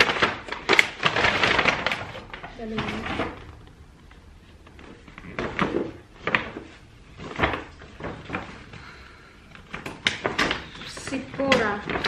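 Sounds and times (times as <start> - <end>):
wrapping paper rustling: 0.0 - 12.0.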